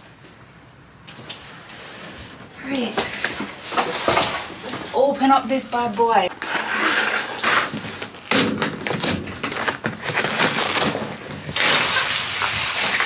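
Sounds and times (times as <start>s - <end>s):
cardboard and bubble wrap crackling: 1.3s - 13.0s
utility knife cutting cardboard: 6.4s - 13.0s.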